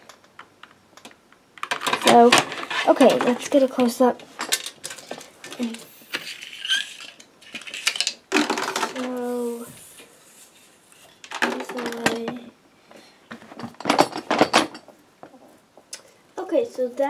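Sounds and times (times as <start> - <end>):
plastic toy pieces rattling: 4.4 - 9.6, 11.2 - 12.4.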